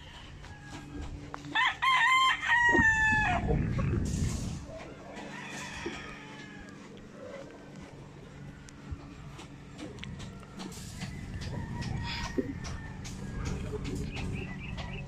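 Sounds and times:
rooster crowing: 0.0s - 3.5s, 5.0s - 7.0s, 11.0s - 13.6s
faint distant rooster crowing: 0.0s - 3.9s, 4.6s - 15.0s.

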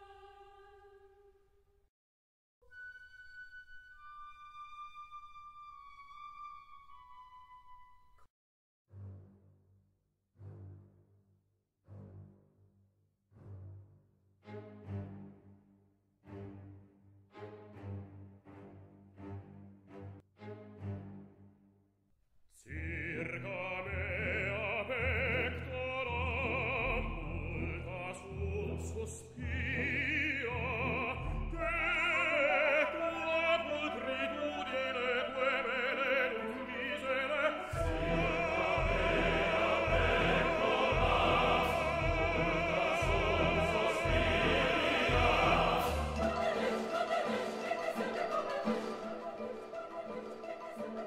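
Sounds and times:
opera singing over orchestra: 0.0s - 1.1s, 22.6s - 51.0s.

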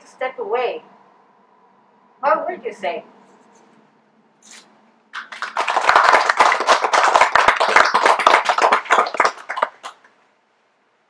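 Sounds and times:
small audience clapping: 5.1s - 10.2s.

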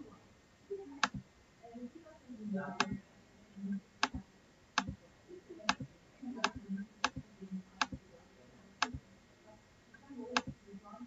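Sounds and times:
computer mouse clicking: 1.0s - 1.3s, 2.8s - 3.0s, 4.0s - 4.2s, 4.8s - 5.0s, 5.7s - 8.1s, 8.8s - 9.1s, 10.0s - 10.6s.

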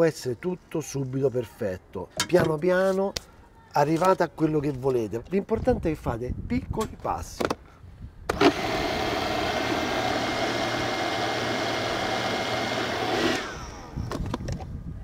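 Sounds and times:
food processor motor running: 8.3s - 14.0s.

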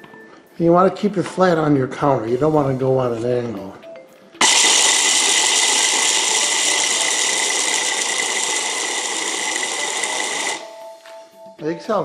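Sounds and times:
stick blender motor whirring: 4.4s - 10.6s.

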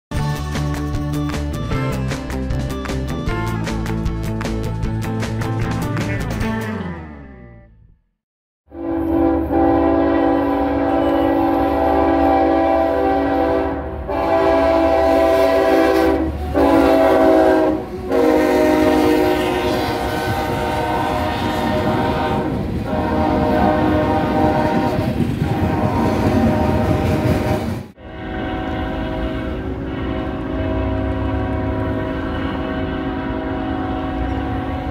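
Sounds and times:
locomotive air horn blasts: 8.7s - 34.9s
train wheels rumbling on rail: 9.0s - 34.9s.

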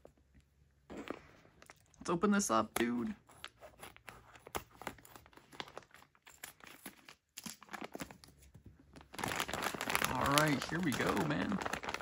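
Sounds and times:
plastic bag crinkling: 4.7s - 12.0s.

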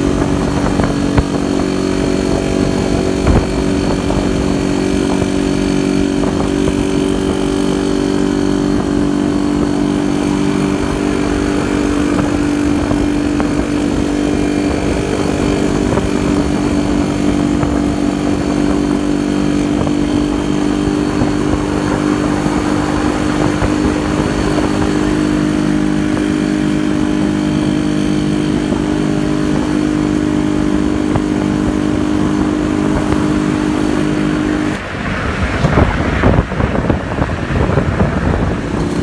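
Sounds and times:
motorcycle engine running: 0.0s - 39.0s
wind buffeting microphone: 0.0s - 39.0s.

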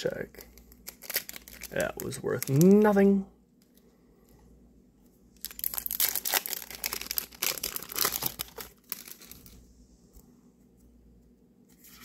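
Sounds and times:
foil wrapper crinkling and tearing: 0.4s - 3.0s, 5.4s - 9.6s.

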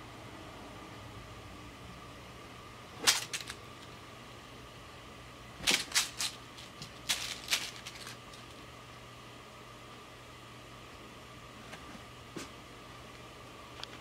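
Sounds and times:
foil ball crackling: 5.6s - 8.6s.

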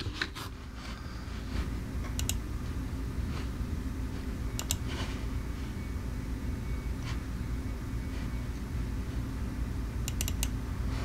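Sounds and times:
steady low hum: 0.0s - 11.0s
computer mouse clicking: 2.1s - 2.4s, 4.6s - 4.9s, 10.0s - 10.6s.

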